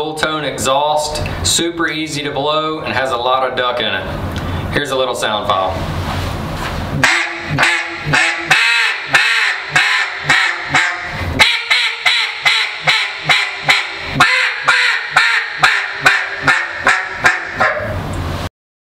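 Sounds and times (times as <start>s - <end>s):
duck call quacks: 7.0s - 18.0s.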